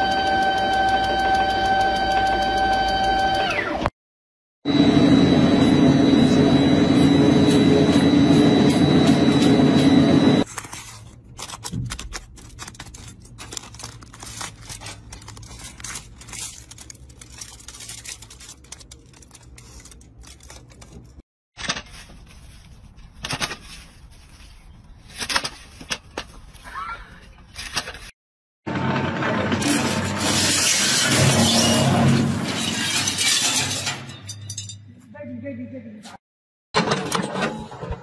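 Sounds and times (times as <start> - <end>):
aluminium foil crinkling: 10.4 - 21.2.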